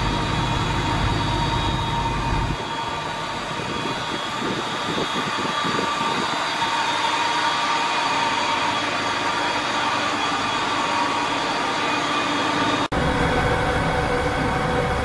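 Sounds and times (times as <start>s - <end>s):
deep machinery rumble: 0.0s - 6.2s, 12.9s - 15.0s
machinery drone: 0.0s - 15.0s
machinery whine and hiss: 0.0s - 15.0s.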